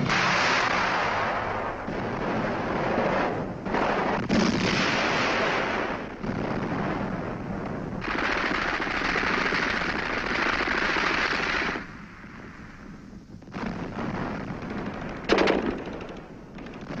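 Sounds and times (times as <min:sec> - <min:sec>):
automatic gunfire: 0:08.0 - 0:11.9, 0:14.6 - 0:17.0.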